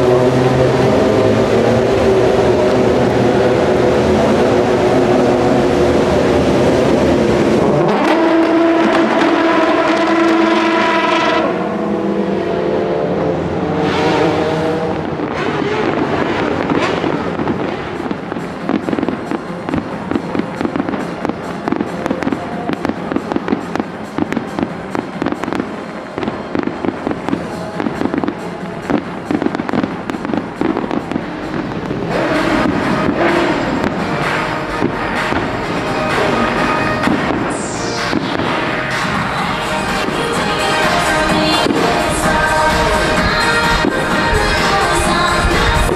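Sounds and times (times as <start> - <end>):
race car engines revving: 0.0 - 45.9
fireworks crackling and popping: 6.2 - 11.3, 14.9 - 45.9.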